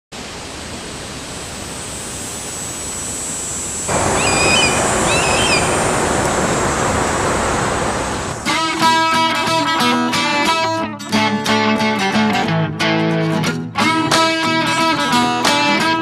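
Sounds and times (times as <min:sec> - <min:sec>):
wind rushing over microphone: 0:02.9 - 0:08.8
bird calls: 0:03.9 - 0:08.4.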